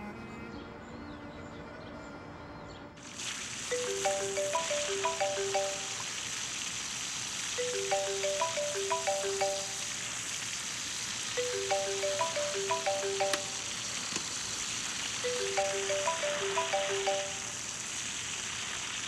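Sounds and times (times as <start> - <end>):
running shower hiss: 3.0 - 19.0
phone ringtone melody: 3.7 - 6.0, 7.6 - 10.0, 11.4 - 13.8, 15.2 - 17.6.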